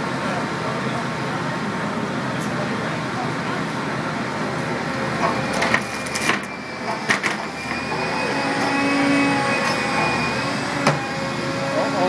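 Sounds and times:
thin steady whine: 0.0 - 12.0
drilling rig running: 3.8 - 12.0.

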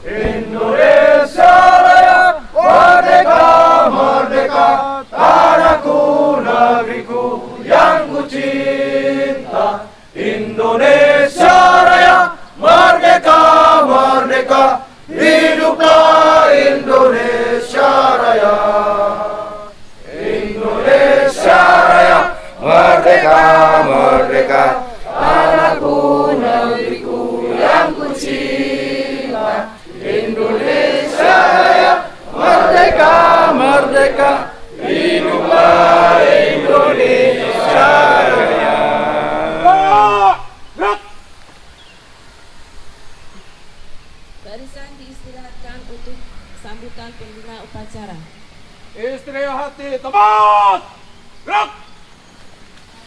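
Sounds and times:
crowd singing in unison: 0.0 - 39.8.

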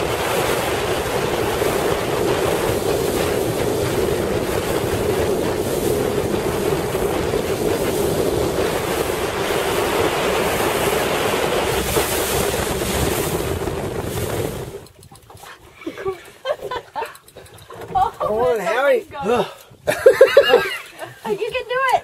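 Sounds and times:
boat motor drone: 0.0 - 15.0
wind noise on microphone: 0.0 - 15.4
water noise: 0.0 - 22.0.

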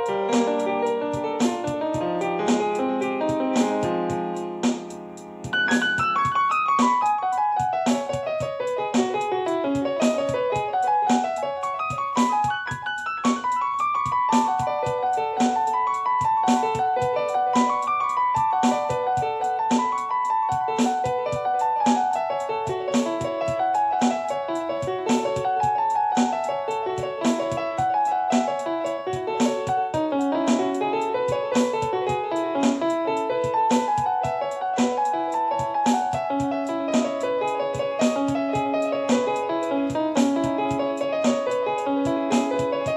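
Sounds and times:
clicking beat: 0.0 - 42.9
piano arpeggios: 0.0 - 42.9.

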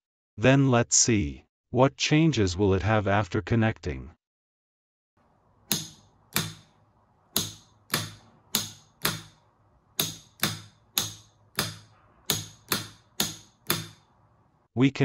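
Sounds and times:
solenoid door lock clicking: 5.6 - 9.4, 10.0 - 14.1.

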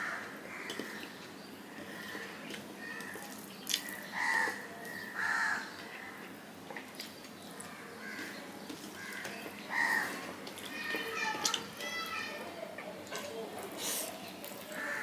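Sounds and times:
eating sounds: 0.6 - 5.0, 6.7 - 11.8, 12.7 - 15.0.

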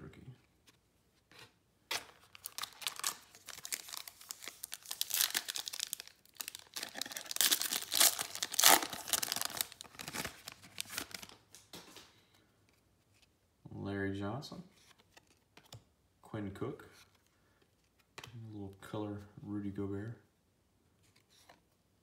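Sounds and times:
foil wrapper tearing and crinkling: 2.3 - 11.4.

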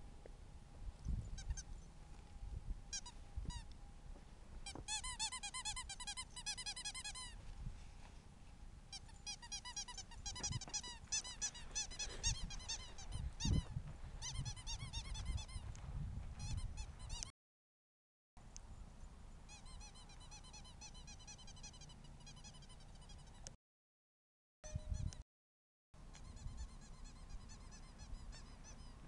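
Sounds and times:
wind: 0.0 - 17.3, 18.4 - 23.6, 24.6 - 25.2, 26.0 - 29.0
ferret squeaky clucking: 4.7 - 7.3, 8.9 - 15.6, 19.5 - 23.5, 26.1 - 29.0.

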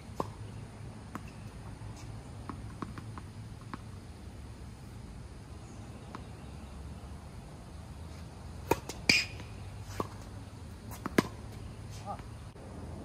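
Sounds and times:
tennis ball bouncing on court: 0.2 - 4.0, 8.6 - 10.3, 10.9 - 12.4
tennis ball struck by rackets: 2.4 - 3.9, 8.6 - 10.3, 10.9 - 12.3.

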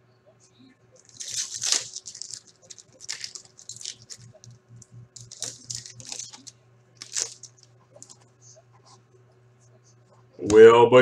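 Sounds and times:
card pack wrapper crinkling and tearing: 1.0 - 4.6, 5.2 - 8.2.

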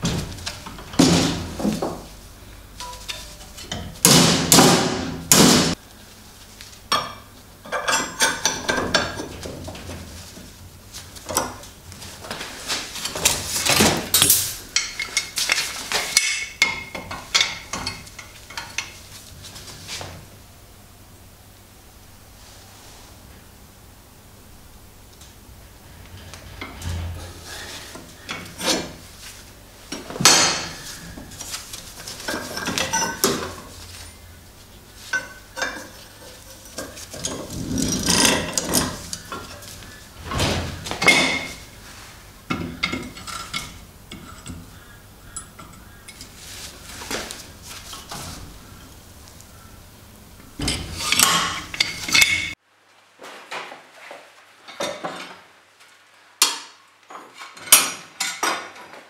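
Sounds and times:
steel parts clinking on vise: 50.6 - 52.6.

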